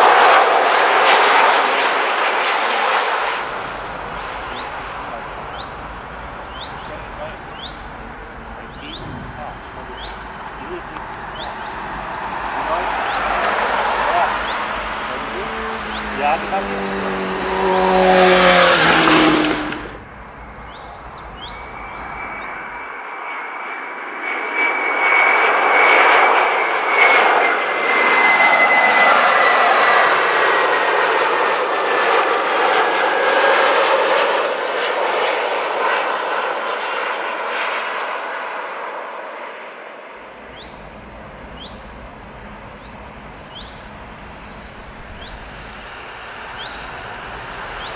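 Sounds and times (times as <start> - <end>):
jet airliner roaring overhead: 0.0 - 47.9
road vehicle passing: 3.2 - 22.9, 40.2 - 47.9.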